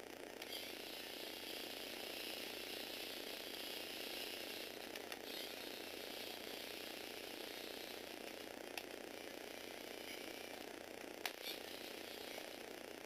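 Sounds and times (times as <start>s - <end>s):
electric motor and gears whirring: 0.0s - 13.0s
sharp clicks: 11.2s - 11.6s.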